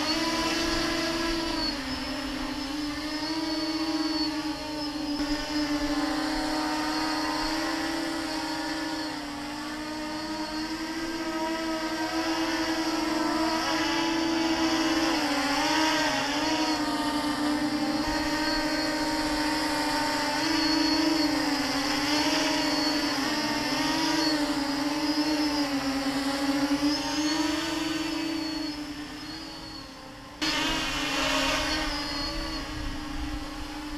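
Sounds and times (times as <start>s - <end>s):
drone motors whining: 0.0s - 33.9s.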